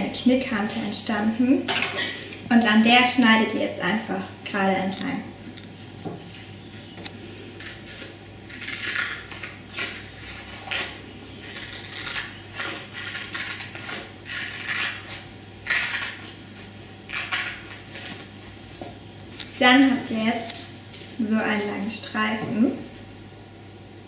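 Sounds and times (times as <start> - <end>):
scissors snipping paper: 7.6 - 16.3.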